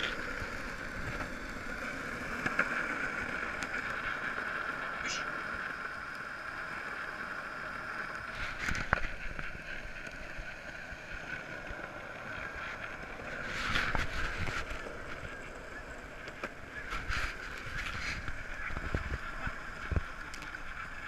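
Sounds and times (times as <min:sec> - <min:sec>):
longboard wheels rolling on concrete: 0:00.0 - 0:21.0.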